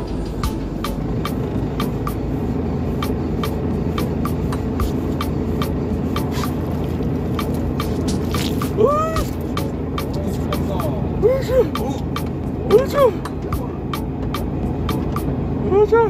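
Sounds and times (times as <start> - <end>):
boat engine rumble: 0.0 - 16.0
sharp ticks: 3.0 - 11.0, 11.8 - 15.3.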